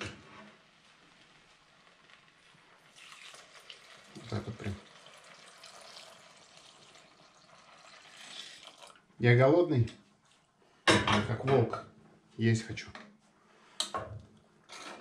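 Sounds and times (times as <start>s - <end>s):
milk pouring into pot: 0.6s - 9.1s.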